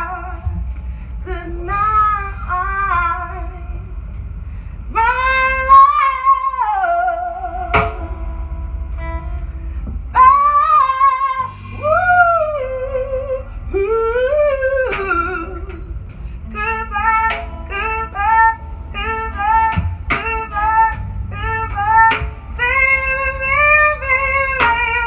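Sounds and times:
woman singing: 0.0 - 0.4, 1.2 - 3.9, 4.9 - 8.2, 10.2 - 15.9, 16.5 - 25.0
electric bass: 0.0 - 25.0
electric guitar: 0.0 - 25.0.

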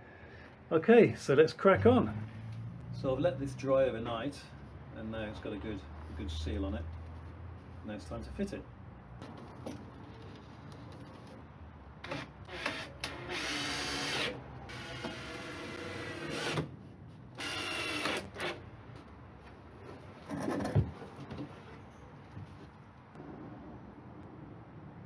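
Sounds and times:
cordless drill bursts: 12.0 - 16.7, 17.4 - 18.6.

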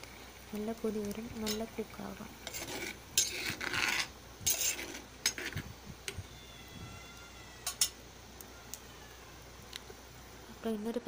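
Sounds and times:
spoon scraping clay pot: 2.4 - 5.7.

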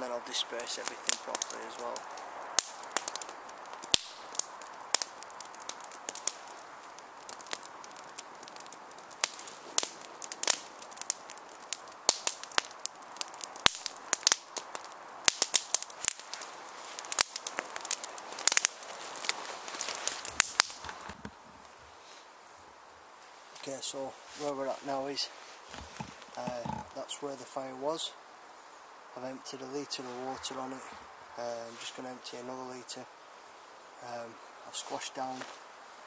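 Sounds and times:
wood fire crackling and popping: 0.0 - 22.0, 23.2 - 28.1.

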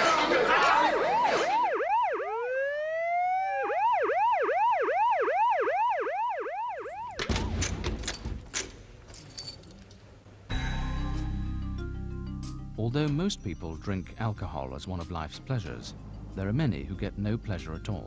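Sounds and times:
emergency vehicle siren: 0.0 - 7.2
music: 10.5 - 18.0.

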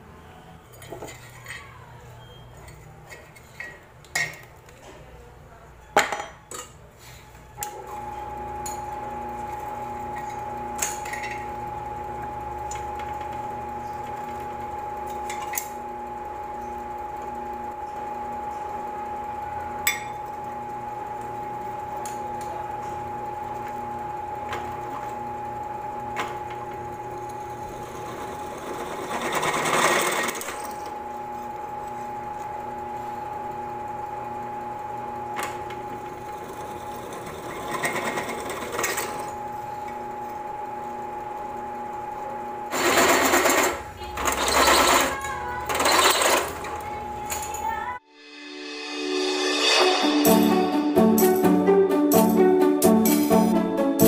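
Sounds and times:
drill press motor whining: 7.6 - 48.0.

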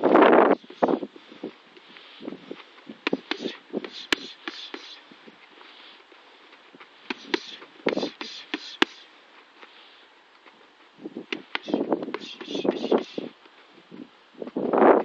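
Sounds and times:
boxing gloves smacking focus mitts: 3.0 - 4.9, 7.0 - 9.0, 11.3 - 12.6.

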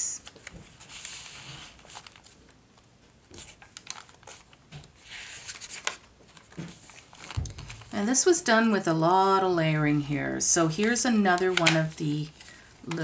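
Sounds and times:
page turning: 0.2 - 2.6, 3.3 - 8.0, 10.8 - 13.0
paper rustling: 0.2 - 8.0, 10.8 - 13.0.

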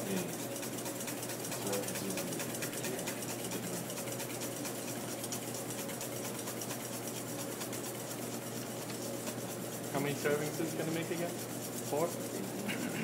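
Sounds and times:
whisk scraping metal bowl: 0.0 - 13.0.

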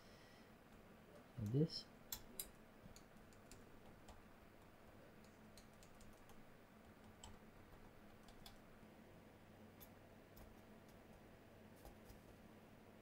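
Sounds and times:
low steady hum: 0.0 - 13.0
hands pressing laptop keyboard clicks: 5.2 - 8.6.

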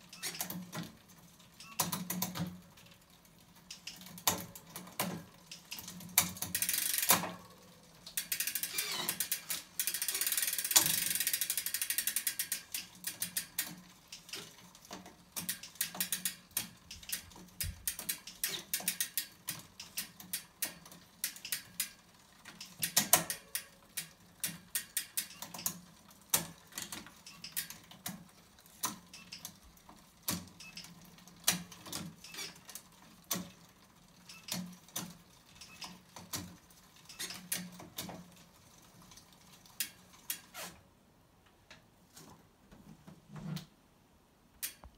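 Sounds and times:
bicycle chain running over cassette: 0.0 - 37.8
freehub ratchet clicking: 3.5 - 29.6, 30.2 - 36.3, 37.0 - 37.8.

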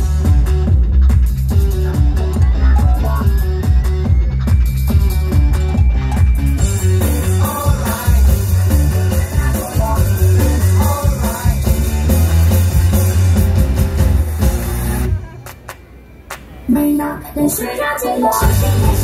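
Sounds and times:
pop dance music with heavy bass: 0.0 - 15.2, 16.7 - 19.0.

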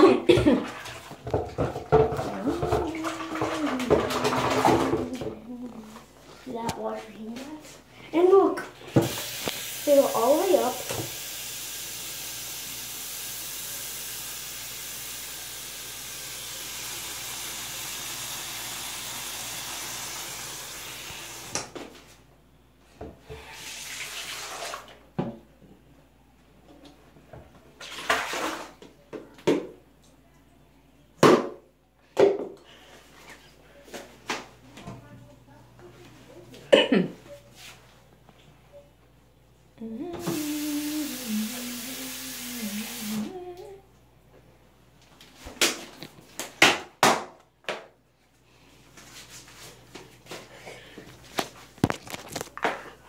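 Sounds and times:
faucet running into plastic cup: 9.0 - 21.6, 40.2 - 43.3.

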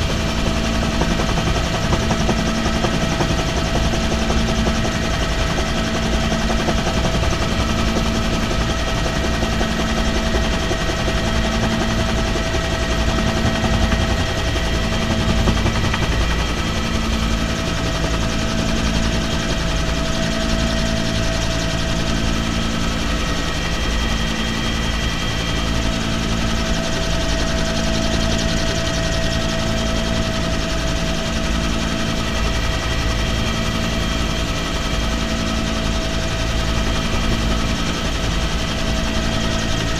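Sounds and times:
helicopter rotor thudding: 0.0 - 31.2
high engine whine: 0.0 - 39.9.

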